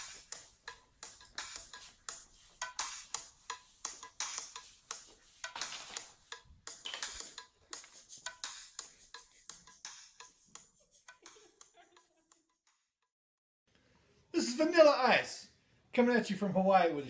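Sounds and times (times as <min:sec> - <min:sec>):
thin ticking percussive beat: 0:00.0 - 0:05.1.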